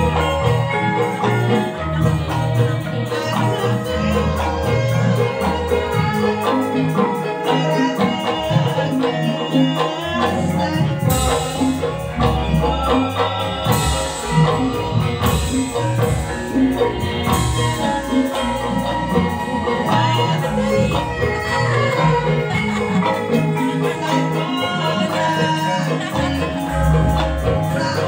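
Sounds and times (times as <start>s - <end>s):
hand drums steady beat: 0.0s - 28.0s
metallophones ringing melody: 0.0s - 28.0s.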